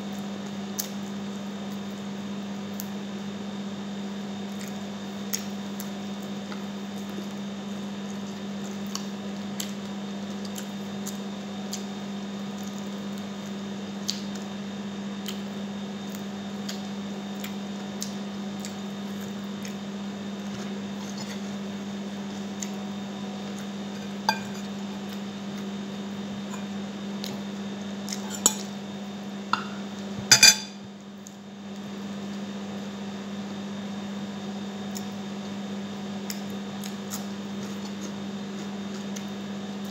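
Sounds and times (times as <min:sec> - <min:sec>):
steady low hum: 0:00.0 - 0:39.9
chewing and finger-licking: 0:00.1 - 0:01.0, 0:04.5 - 0:07.4, 0:08.0 - 0:14.5, 0:15.2 - 0:21.6, 0:22.2 - 0:25.7, 0:26.4 - 0:28.7, 0:31.2 - 0:31.9, 0:34.8 - 0:35.6, 0:36.2 - 0:39.9
clinks on a plate: 0:24.3 - 0:24.5, 0:29.6 - 0:30.8.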